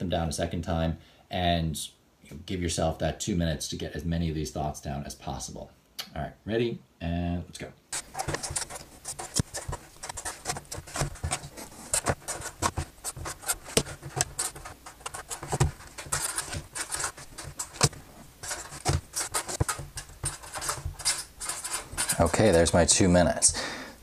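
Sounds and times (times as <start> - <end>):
paper notes tapping on desk: 8.0 - 22.8
pen scratching on paper: 8.0 - 23.1.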